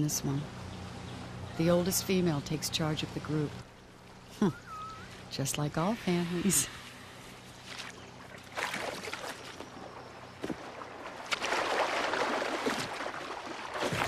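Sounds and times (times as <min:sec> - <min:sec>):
water splashing and sloshing: 0:00.0 - 0:14.0.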